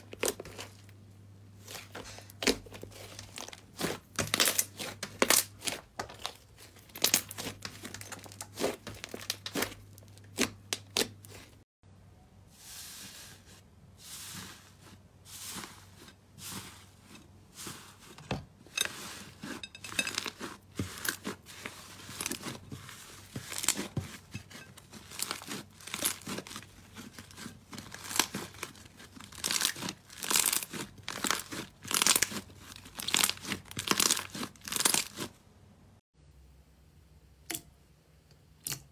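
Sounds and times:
slime crackling and popping: 2.4s - 11.4s, 25.0s - 35.3s.

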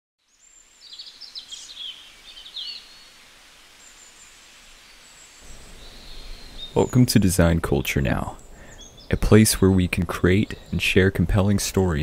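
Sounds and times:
birds chirping: 0.2s - 12.0s
soft outdoor hiss: 0.2s - 12.0s.

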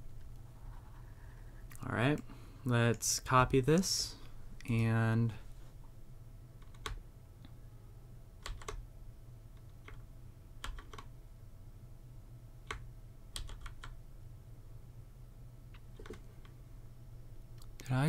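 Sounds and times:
low steady hum: 0.0s - 18.0s
keyboard keys clicking: 6.6s - 7.0s, 8.4s - 8.8s, 10.6s - 11.1s, 13.4s - 14.0s.

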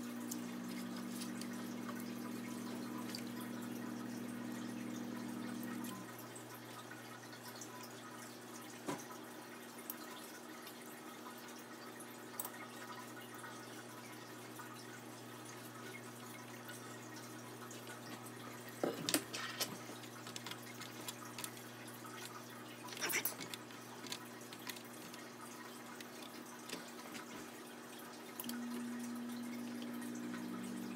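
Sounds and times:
steady low hum: 0.0s - 6.6s, 19.9s - 30.9s.

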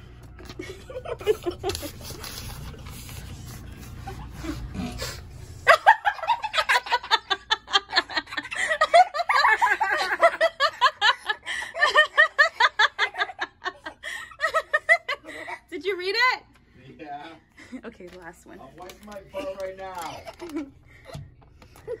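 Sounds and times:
person giggling: 0.4s - 2.2s, 5.7s - 15.6s, 19.4s - 21.2s.

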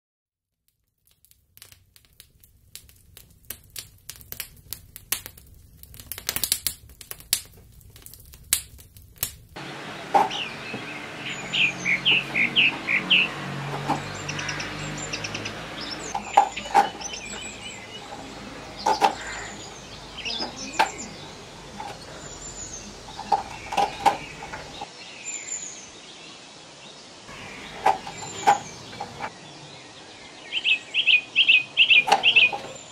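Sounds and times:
crackling clicks: 0.6s - 10.5s, 12.0s - 24.9s, 27.3s - 29.3s
small birds chirping: 8.0s - 32.9s.

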